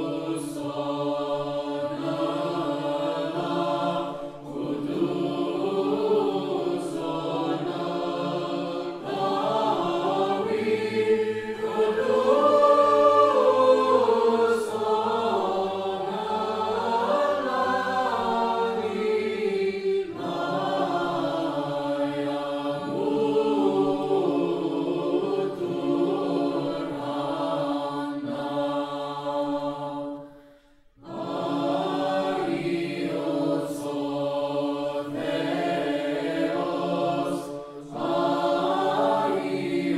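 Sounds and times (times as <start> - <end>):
choir chanting unaccompanied: 0.0 - 39.9.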